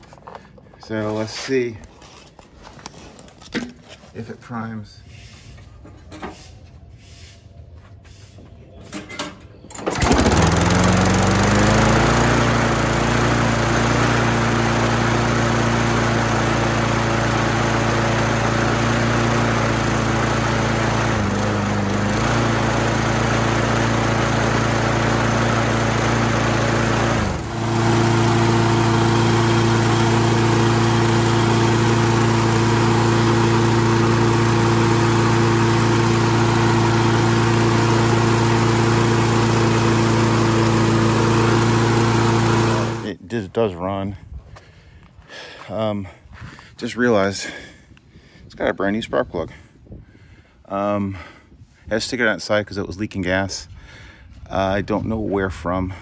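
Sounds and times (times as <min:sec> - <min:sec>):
lawn mower engine running: 0:08.9 - 0:43.2.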